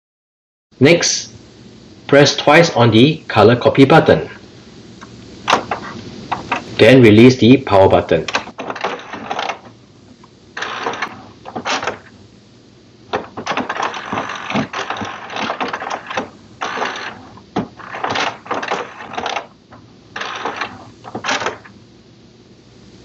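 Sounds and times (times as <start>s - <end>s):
printer mechanism whirring: 5.4s - 6.9s, 7.8s - 12.2s, 13.1s - 21.8s.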